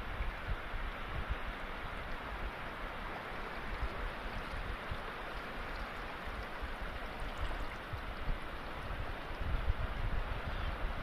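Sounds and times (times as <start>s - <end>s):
river water sloshing: 1.0s - 10.0s.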